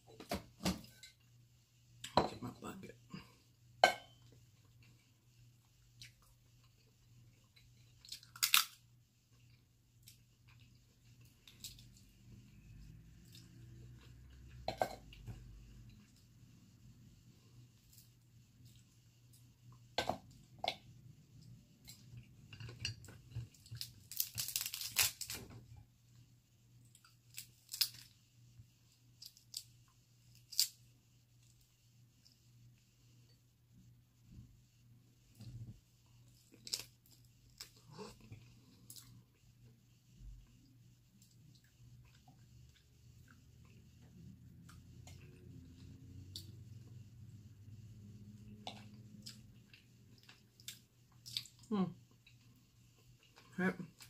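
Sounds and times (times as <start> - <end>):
crab shell cracking: 8.2 - 8.8, 23.8 - 25.4, 27.3 - 28.1
steady low hum: 28.2 - 54.0.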